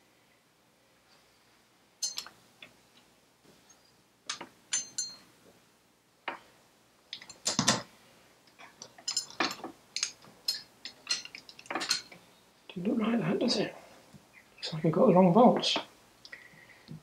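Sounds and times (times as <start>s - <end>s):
metal parts clinking on metal: 2.0s - 2.3s, 4.7s - 5.2s, 9.0s - 12.2s.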